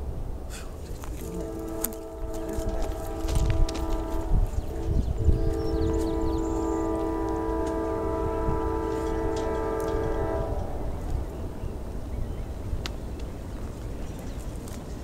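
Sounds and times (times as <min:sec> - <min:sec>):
distant locomotive air horn: 0:01.2 - 0:11.2.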